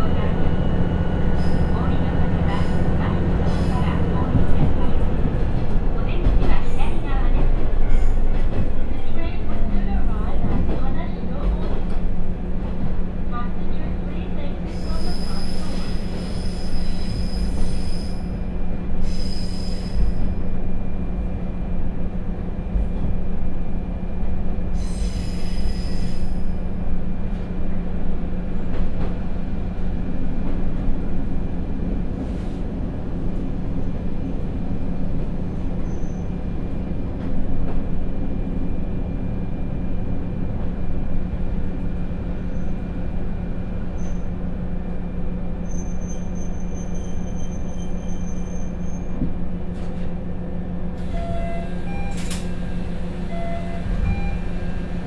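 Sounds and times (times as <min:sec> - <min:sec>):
railcar engine hum: 0:00.0 - 0:55.0
high-pitched wheel squeal: 0:14.7 - 0:18.3, 0:19.0 - 0:20.2, 0:24.8 - 0:26.5, 0:45.6 - 0:49.2.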